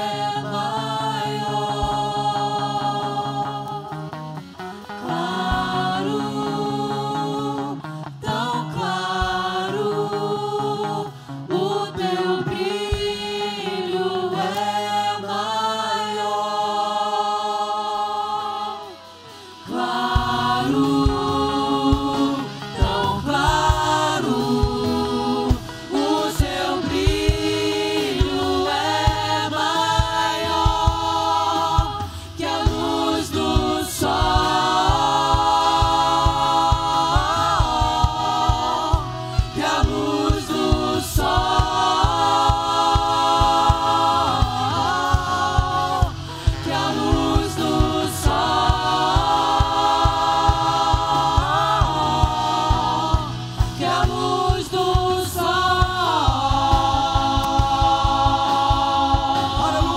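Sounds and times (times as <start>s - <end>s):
group singing in harmony: 0.0s - 59.9s
instrumental backing: 18.8s - 59.9s
steady beat: 19.8s - 59.9s.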